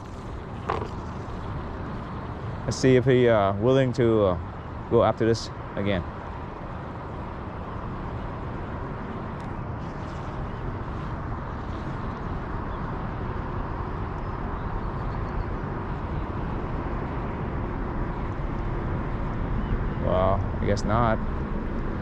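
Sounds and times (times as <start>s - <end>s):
rushing outdoor background noise: 0.0s - 22.0s.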